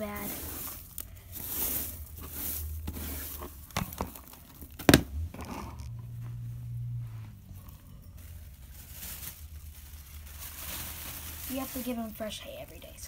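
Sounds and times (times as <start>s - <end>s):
dustpan and brush sweeping bedding: 0.0s - 4.2s, 7.0s - 13.0s.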